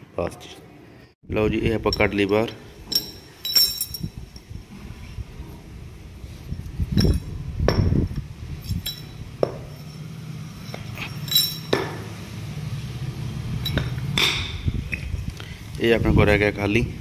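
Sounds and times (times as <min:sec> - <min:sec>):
steel parts clinking together: 0:02.9 - 0:04.5, 0:06.9 - 0:07.9, 0:08.6 - 0:12.0, 0:13.6 - 0:14.5.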